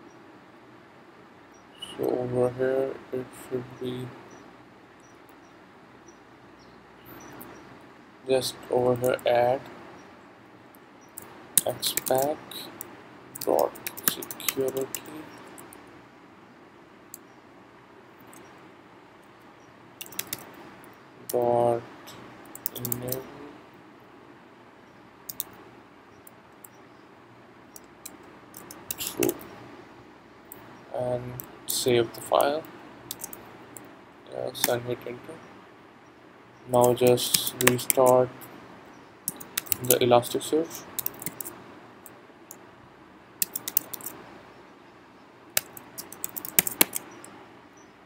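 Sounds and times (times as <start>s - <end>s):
faint steady hiss: 0.0s - 48.0s
keyboard keys clicking: 11.2s - 15.7s, 20.0s - 20.5s, 22.5s - 23.2s, 33.1s - 33.4s, 36.8s - 38.2s, 39.3s - 40.0s, 41.0s - 41.5s, 43.4s - 44.2s, 45.6s - 47.2s
keyboard key clicks: 20.0s - 20.5s, 39.3s - 39.9s, 41.0s - 41.5s, 43.4s - 44.2s, 45.6s - 47.1s.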